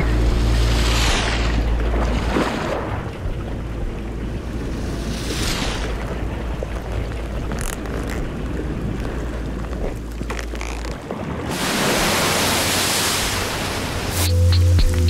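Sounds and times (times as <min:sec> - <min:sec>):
deep droning musical note: 0:00.0 - 0:07.4
low rumble: 0:00.0 - 0:11.5
tyre splashing through water: 0:04.9 - 0:14.2.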